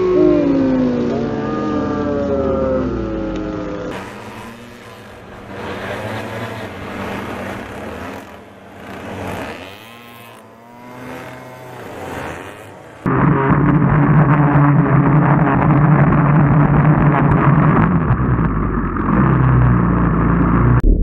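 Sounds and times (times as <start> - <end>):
small boat engines buzzing: 0.0 - 20.6.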